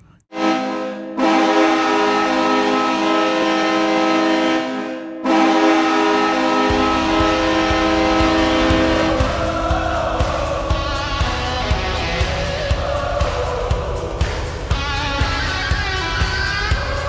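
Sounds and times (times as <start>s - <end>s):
hockey goal horn blasts: 0.3s - 9.3s
thumping drum beat: 6.7s - 17.0s.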